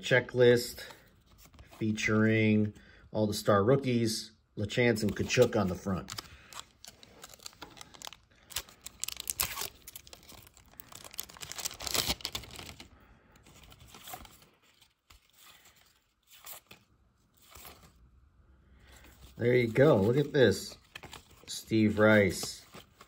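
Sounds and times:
cards rustling: 0.7 - 2.8, 4.9 - 18.0, 18.8 - 23.0
foil wrapper tearing and crinkling: 6.1 - 12.9.

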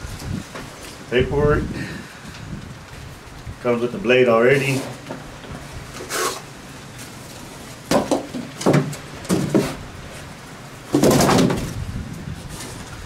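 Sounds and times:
cardboard scraping: 4.5 - 5.0, 5.9 - 10.3, 10.9 - 13.0
cardboard scuffs and knocks: 7.9 - 9.8, 10.9 - 11.8.

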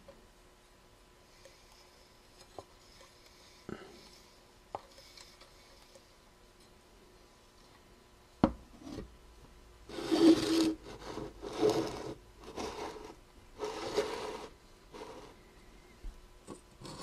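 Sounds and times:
tin can scraping on countertop: 9.9 - 15.4, 16.8 - 17.0.

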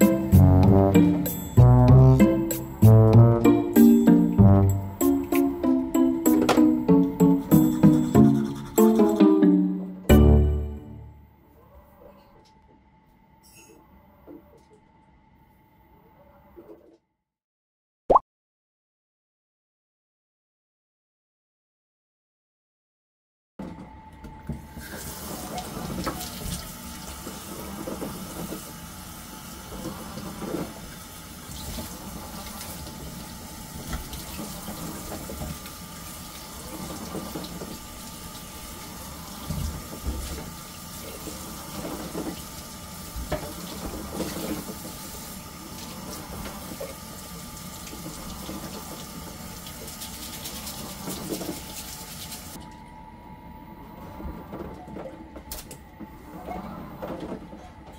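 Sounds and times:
tap water running into sink: 33.8 - 52.6.

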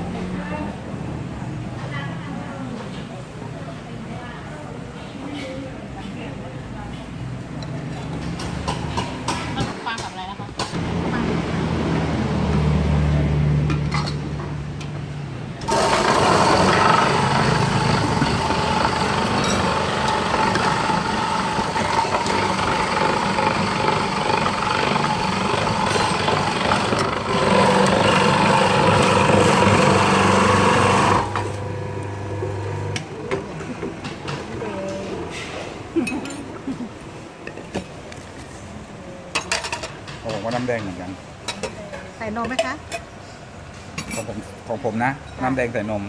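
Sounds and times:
ice shaving grinding: 15.7 - 32.9
machine motor humming: 15.7 - 34.1.

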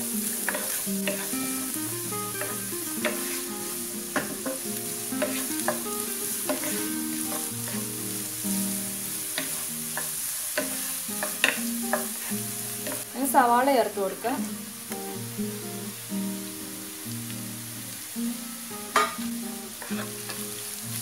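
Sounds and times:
vegetables sizzling in a pan: 0.0 - 21.0
spatula knocking and scraping pan: 0.4 - 1.3, 2.4 - 3.4, 5.2 - 5.8.

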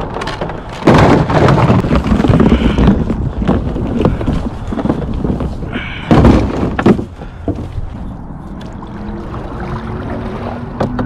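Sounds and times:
paddle knocking wooden hull: 0.0 - 8.0, 10.1 - 11.0
water lapping and dripping: 7.2 - 11.0.

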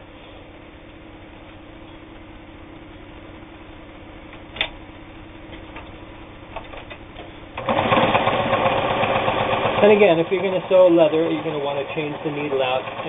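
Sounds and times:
faint steady hum: 0.0 - 7.7
sewing machine stitching fast: 7.6 - 13.0.

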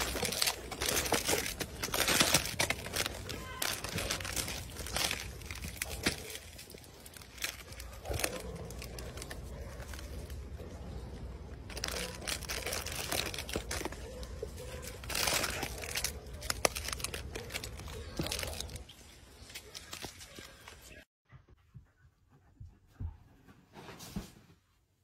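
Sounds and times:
plastic wrappers crinkling: 0.0 - 21.0.

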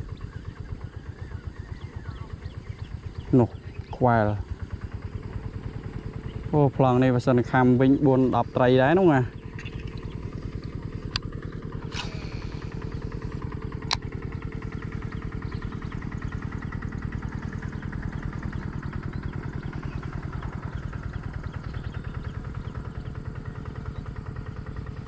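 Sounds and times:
small engine chugging: 0.0 - 25.0
sharp clicks: 13.8 - 14.1.

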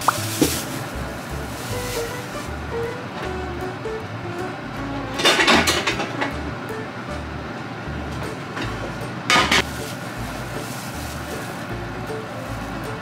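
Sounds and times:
background music with bass line: 0.0 - 9.1, 9.7 - 13.0
kitchen handling noise: 5.2 - 6.4, 8.6 - 10.0.

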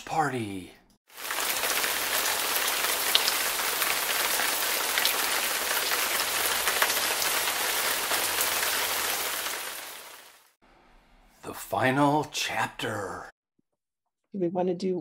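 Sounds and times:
steady rain: 1.1 - 10.6.

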